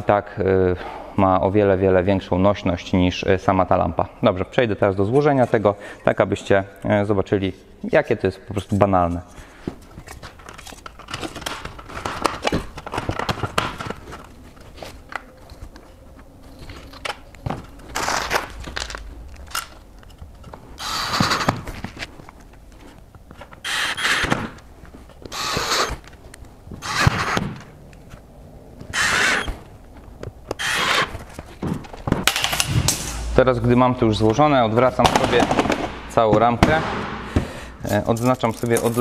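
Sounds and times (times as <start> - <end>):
cordless drill driving screws: 20.8 - 21.5, 23.6 - 24.5, 25.2 - 25.9, 26.8 - 27.4, 28.9 - 29.5, 30.6 - 31.1.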